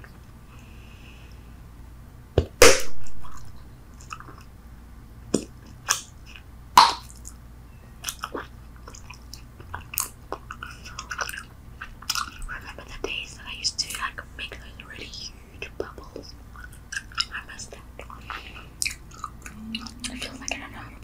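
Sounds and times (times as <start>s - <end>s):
gum snaps: 5.3s - 7.4s, 8.0s - 12.4s, 18.8s - 19.9s
gum chewing wet smacks: 8.0s - 12.5s, 18.0s - 20.6s.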